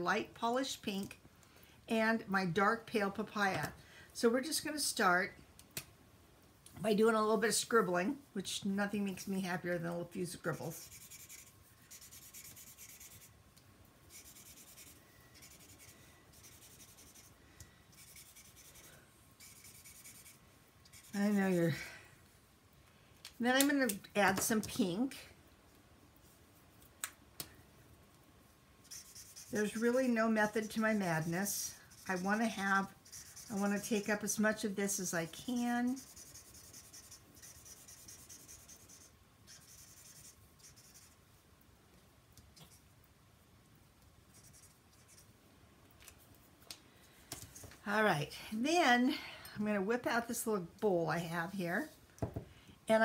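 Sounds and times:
marker scribbling on paper: 0:10.6 - 0:13.3, 0:14.1 - 0:21.6, 0:28.8 - 0:41.2, 0:44.3 - 0:45.3.

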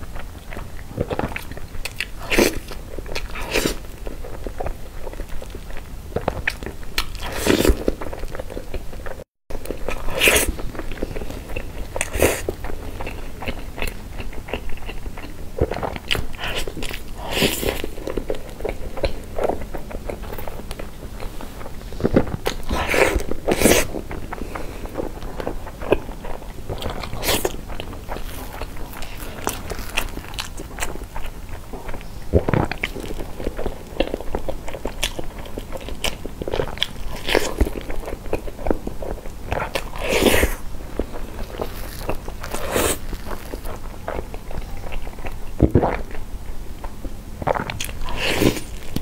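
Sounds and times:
biting and chewing cake: 0:00.0 - 0:49.0.

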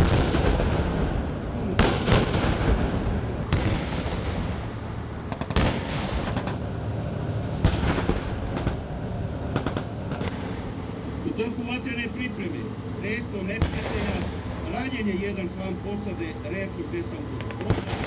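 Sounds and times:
explosions: 0:00.0 - 0:06.6, 0:07.6 - 0:08.9
low rumble: 0:00.0 - 0:11.2.

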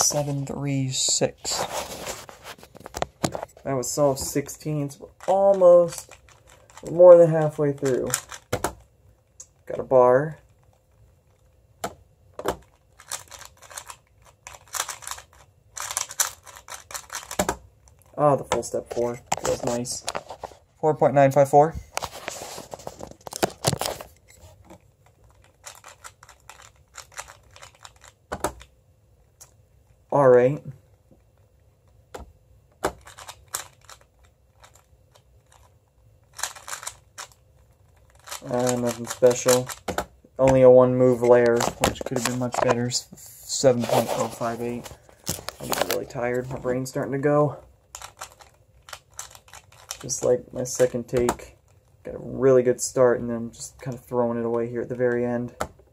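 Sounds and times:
puzzle cube clicking: 0:04.2 - 0:08.8, 0:11.8 - 0:18.6, 0:25.0 - 0:28.7, 0:32.8 - 0:35.7, 0:36.3 - 0:40.6, 0:47.9 - 0:51.4.

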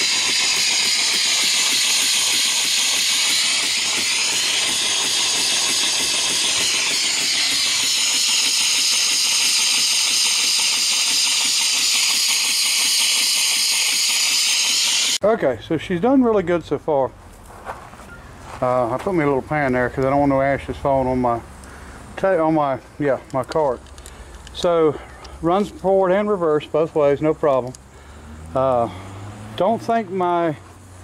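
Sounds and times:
steam engine hissing: 0:00.0 - 0:15.2.

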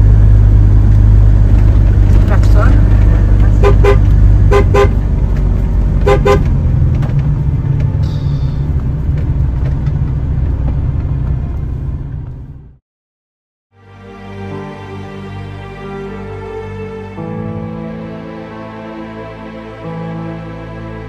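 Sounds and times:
road and engine rumble: 0:00.0 - 0:12.8, 0:13.8 - 0:21.0
vehicle horn tooting: 0:03.5 - 0:05.0, 0:06.0 - 0:06.5.

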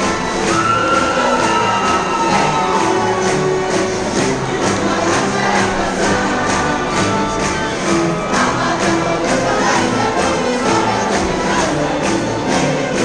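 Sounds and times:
group singing together: 0:00.0 - 0:13.0
percussion beat: 0:00.0 - 0:13.0.

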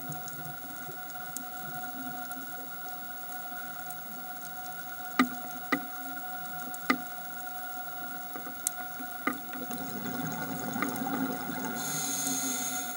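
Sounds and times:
underwater two-tone hum: 0:00.0 - 0:12.9
low underwater rushing: 0:08.9 - 0:12.9.

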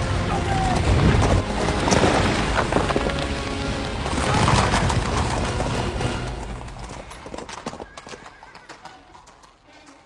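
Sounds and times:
film score music: 0:00.0 - 0:07.7
horses' hooves clattering: 0:00.3 - 0:10.0.

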